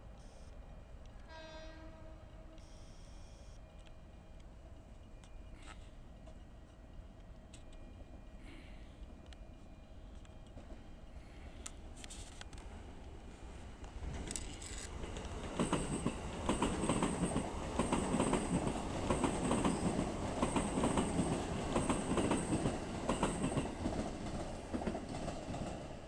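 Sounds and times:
electric train rumbling past: 0.6 - 26.0
wheels clacking over rail joints: 14.0 - 25.8.

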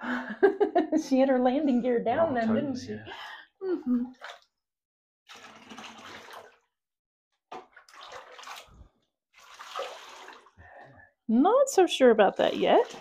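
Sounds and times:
water splashing in bathtub: 4.1 - 4.6, 5.3 - 6.8, 7.4 - 11.0, 11.7 - 13.0.

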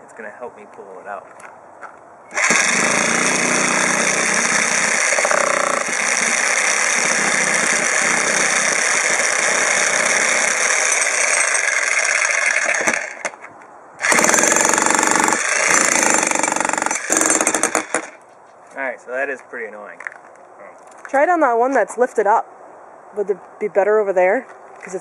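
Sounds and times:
demolition hammer on concrete: 2.3 - 13.4, 14.0 - 18.2.

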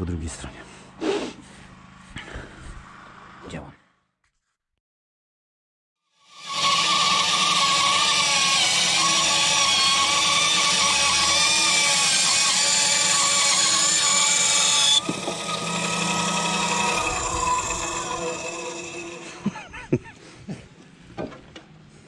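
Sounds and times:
electric planer motor whine: 6.2 - 19.6.

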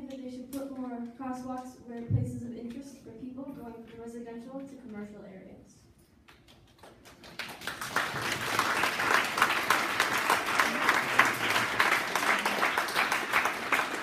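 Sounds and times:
audience applauding: 6.8 - 14.0.

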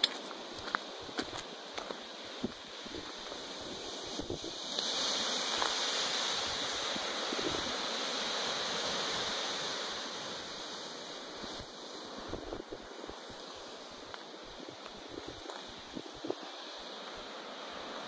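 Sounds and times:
waves washing onto beach: 0.0 - 18.0
wind buffeting microphone: 0.6 - 4.7, 6.4 - 7.9, 11.4 - 13.4, 14.0 - 16.6.

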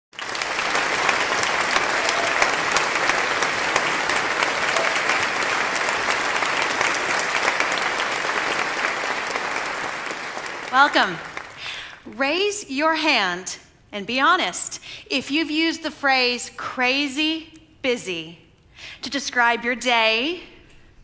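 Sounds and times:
audience applauding: 0.1 - 12.0.

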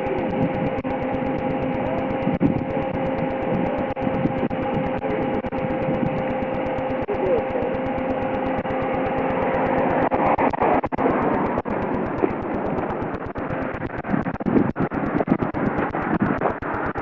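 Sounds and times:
faint voices: 0.0 - 8.0
car engine and road noise: 0.0 - 17.0
constant hum: 0.0 - 17.0.

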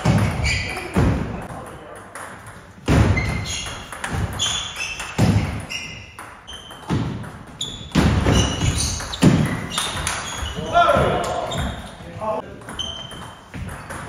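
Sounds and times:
shoe squeaks on sports floor: 0.0 - 1.0, 3.0 - 12.0, 12.7 - 14.0
table tennis ball knocking: 12.6 - 14.0.

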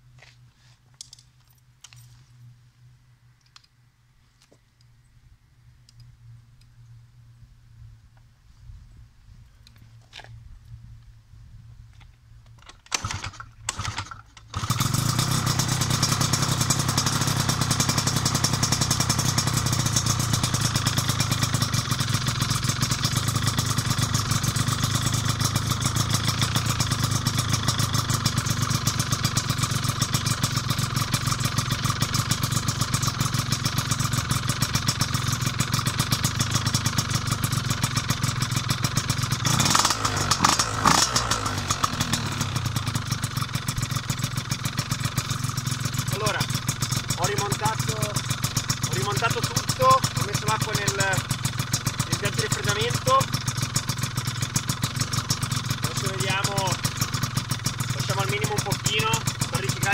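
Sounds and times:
scooter engine idling: 13.8 - 59.9.

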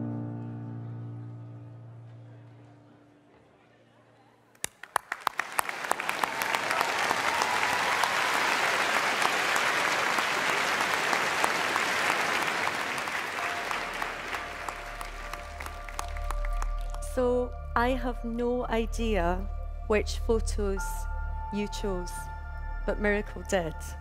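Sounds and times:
audience applauding: 4.6 - 17.1.

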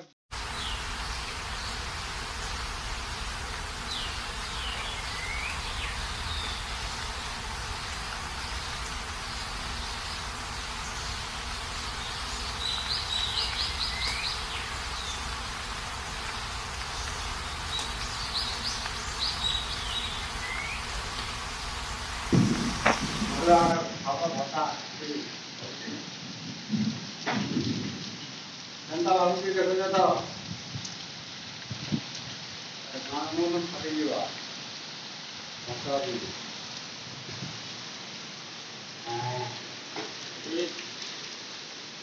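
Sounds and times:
heavy rain: 0.3 - 42.0
bird chirping: 0.4 - 23.7.

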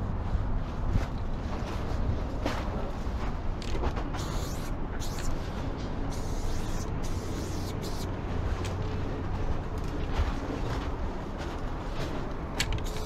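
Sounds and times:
steady low rumble: 0.0 - 13.0
spray paint can hissing: 4.2 - 5.4, 6.1 - 8.1, 12.8 - 13.0.

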